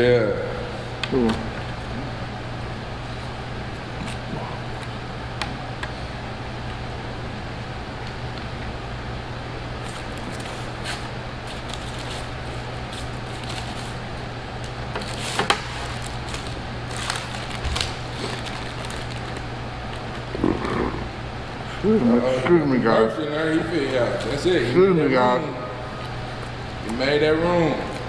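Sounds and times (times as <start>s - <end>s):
low background hum: 0.0s - 28.0s
paper crackling and rustling: 9.8s - 20.2s.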